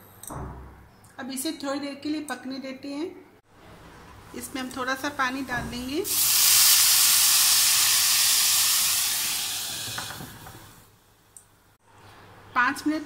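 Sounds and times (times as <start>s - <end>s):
water hissing in hot oil: 6.0s - 10.9s.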